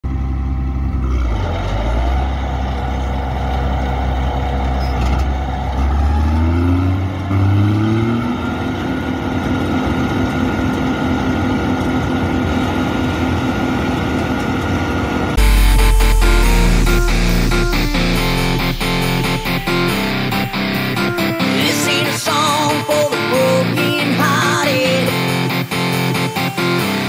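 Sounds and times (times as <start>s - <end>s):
diesel engine idling and revving: 0.1s - 22.5s
high steady machine whine: 15.4s - 23.3s.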